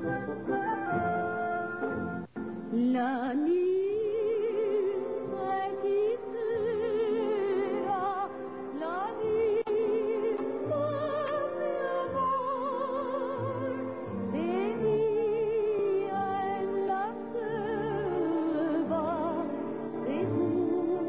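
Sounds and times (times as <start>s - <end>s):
instrumental accompaniment: 0.0s - 2.9s
woman singing operatically: 2.7s - 21.0s.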